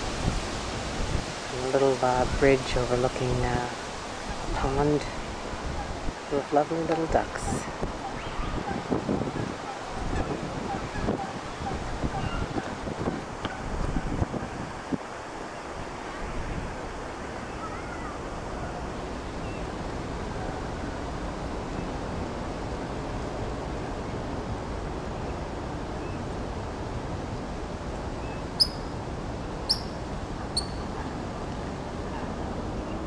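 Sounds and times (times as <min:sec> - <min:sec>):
rushing outdoor background noise: 0:00.0 - 0:33.0
sharp high-pitched bird calls: 0:28.6 - 0:29.0, 0:29.7 - 0:30.9.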